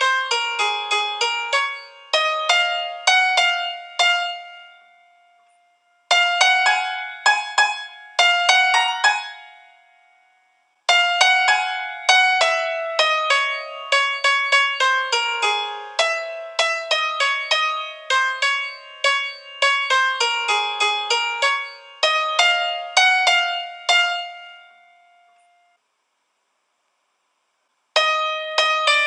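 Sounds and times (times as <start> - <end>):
light melody of struck notes: 0.0 - 25.8, 28.0 - 29.0.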